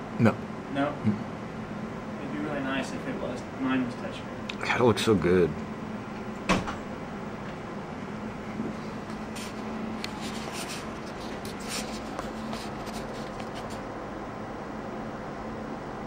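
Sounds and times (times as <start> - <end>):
equipment hum and air noise: 0.0 - 16.0
soft scratchy rustles: 8.8 - 13.9.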